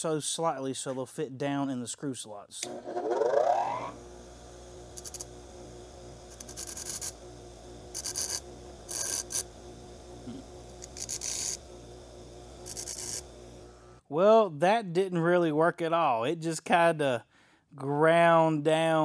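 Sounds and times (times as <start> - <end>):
bench grinder motor hum: 2.6 - 14.0
metal grinding on stone wheel: 2.8 - 4.0, 6.2 - 7.2, 7.8 - 9.6, 10.2 - 11.6, 12.6 - 13.3.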